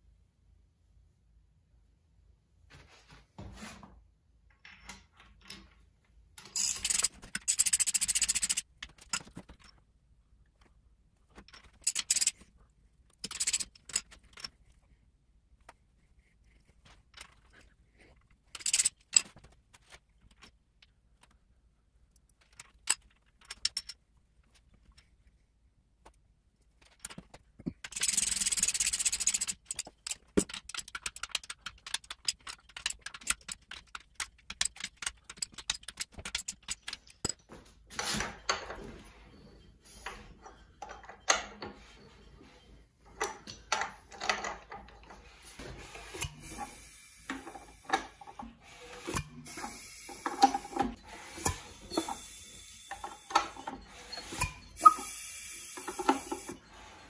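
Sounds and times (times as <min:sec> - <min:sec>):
ratchet wrench clicking: 0:06.6 - 0:08.6, 0:11.8 - 0:12.3, 0:13.2 - 0:14.0, 0:18.6 - 0:19.0, 0:27.8 - 0:37.0
tool scraping: 0:26.8 - 0:57.0
tools knocking and clanking: 0:40.0 - 0:42.5, 0:43.1 - 0:45.2.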